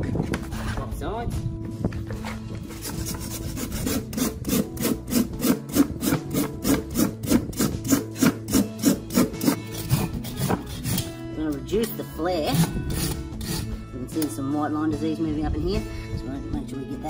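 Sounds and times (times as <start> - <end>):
rasp filing a hoof: 2.2 - 11.2, 12.4 - 13.8.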